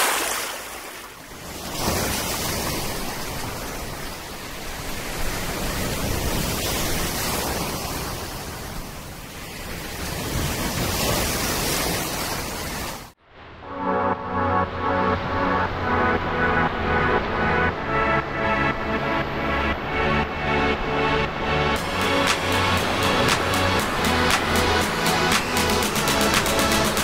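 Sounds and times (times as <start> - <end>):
surf breaking in shallows: 0.0 - 13.2
music: 13.6 - 27.0.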